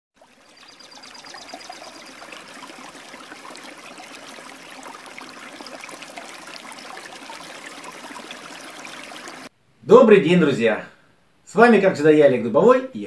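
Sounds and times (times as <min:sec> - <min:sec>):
river water flowing: 0:00.2 - 0:09.5.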